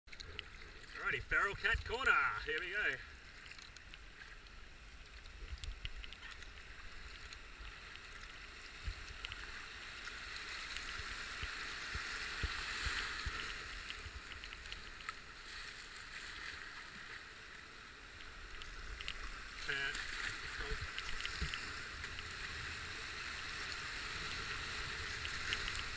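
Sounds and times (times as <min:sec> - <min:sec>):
rushing whitewater: 0:19.4 - 0:21.3.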